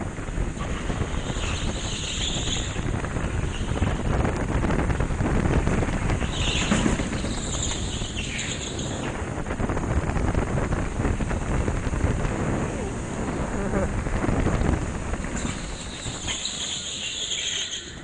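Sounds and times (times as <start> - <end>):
go-kart engine rumble: 0.0 - 18.0
wind buffeting: 0.0 - 18.0
tyres squealing: 15.4 - 18.0.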